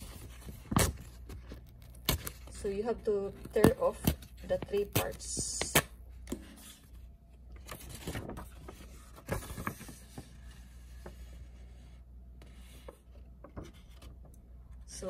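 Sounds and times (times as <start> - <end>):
paper rustling and crackling: 7.6 - 11.2.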